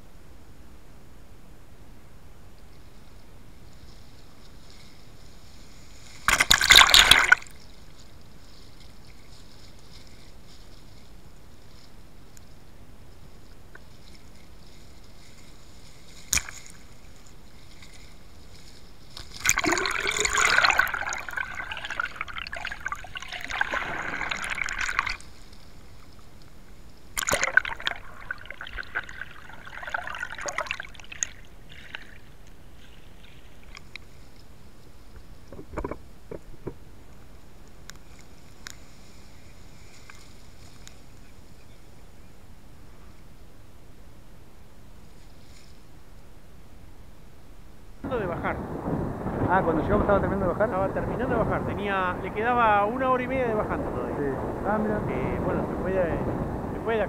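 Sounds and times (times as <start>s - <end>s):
surf rushing and splashing: 4.8s - 7.6s, 14.6s - 26.2s, 27.1s - 34.3s, 48.0s - 57.0s.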